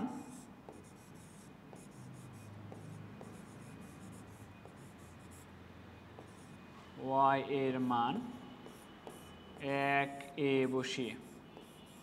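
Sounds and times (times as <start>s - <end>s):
pen scratching on screen: 0.0s - 5.5s, 6.2s - 6.6s, 8.2s - 9.8s, 11.0s - 12.0s.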